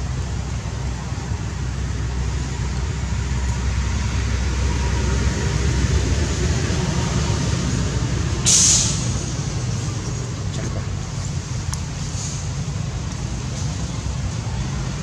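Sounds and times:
low background rumble: 0:00.0 - 0:15.0
brief high hiss: 0:08.5 - 0:09.2.

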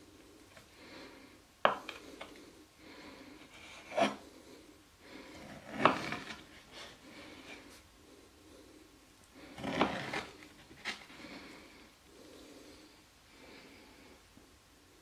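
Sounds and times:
knife slicing meat on wooden board: 0:05.6 - 0:06.3.

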